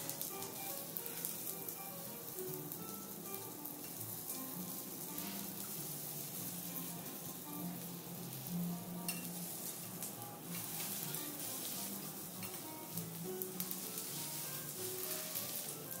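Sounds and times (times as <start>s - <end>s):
food sizzling on a griddle: 0.0s - 16.0s
soft background music: 0.0s - 16.0s
utensils tapping on steel: 9.0s - 9.4s, 12.4s - 12.7s.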